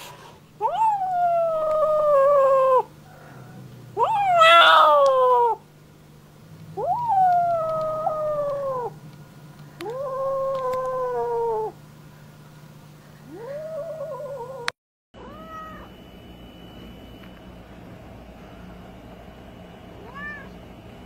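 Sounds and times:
cat yowling: 0.6 - 3.3, 4.0 - 5.6, 6.8 - 9.0, 9.8 - 11.8, 13.3 - 16.0, 20.0 - 20.6.

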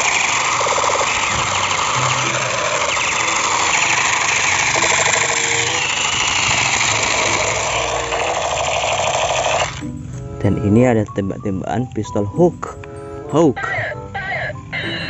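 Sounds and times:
toy gun motorised rattle: 0.0 - 9.8.

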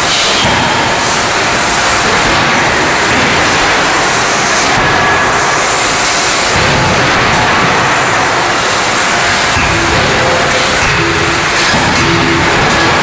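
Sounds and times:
forging machinery roar and hiss: 0.0 - 13.0.

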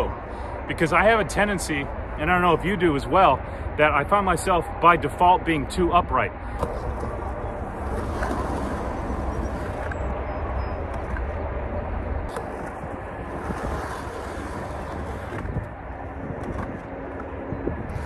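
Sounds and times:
wind rumbling on microphone: 0.0 - 18.0
skateboard rolling on concrete: 6.5 - 18.0.

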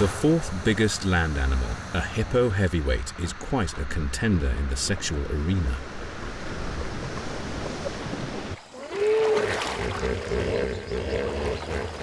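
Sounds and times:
water sloshing and splashing: 5.8 - 10.7
hippopotamus calling: 8.7 - 12.0.

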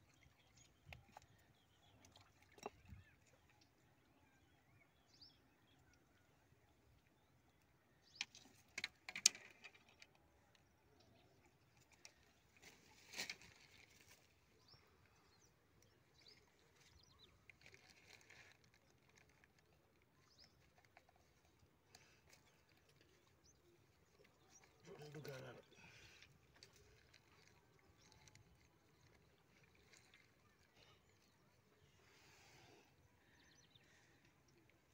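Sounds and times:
rustles and knocks of fish handling: 11.8 - 14.4.

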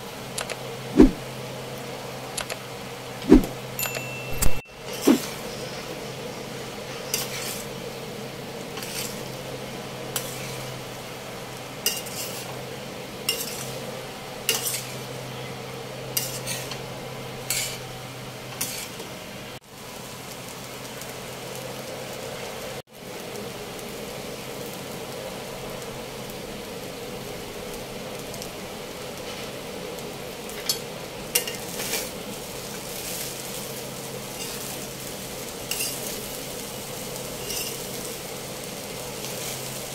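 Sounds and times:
rice sizzling in a pan: 0.0 - 39.9
spatula scraping a metal pan: 7.0 - 7.7, 8.8 - 9.2, 11.8 - 12.5, 14.5 - 15.1, 16.2 - 16.8, 17.5 - 17.8, 18.5 - 19.0.

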